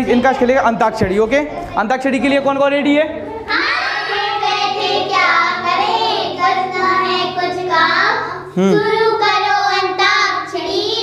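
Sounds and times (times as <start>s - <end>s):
children singing: 3.4s - 11.0s.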